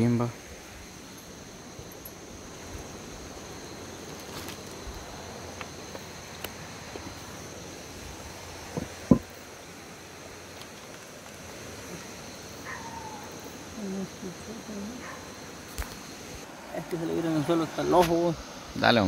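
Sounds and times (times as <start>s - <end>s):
night insects chirring: 0.0s - 19.0s
sharp knocks: 8.7s - 9.3s.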